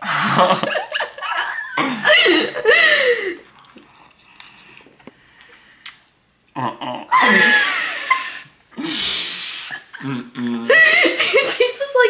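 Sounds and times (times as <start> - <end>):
people laughing: 7.1 - 8.5.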